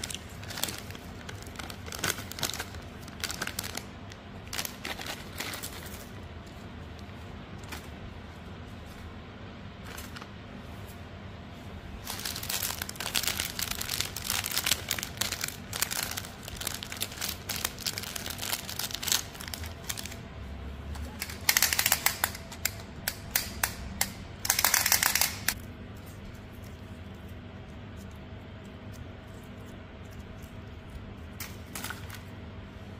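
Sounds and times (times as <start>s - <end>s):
plastic wrappers crinkling: 0.0s - 9.0s, 12.0s - 20.3s, 21.0s - 23.3s.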